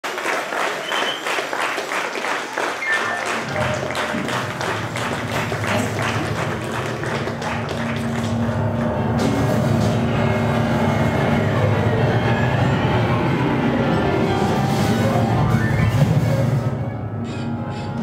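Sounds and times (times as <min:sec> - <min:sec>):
hands clapping in a beat: 0:00.0 - 0:09.3
live band playing: 0:02.8 - 0:17.6
low bass notes: 0:03.4 - 0:17.2.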